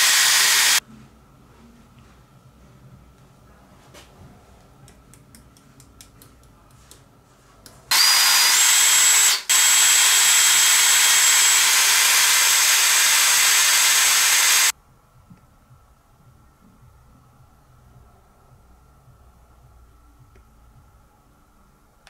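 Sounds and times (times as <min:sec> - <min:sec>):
electric power tool motor whine: 0:00.0 - 0:00.8, 0:07.9 - 0:14.7
loud hissing rush: 0:00.0 - 0:00.8.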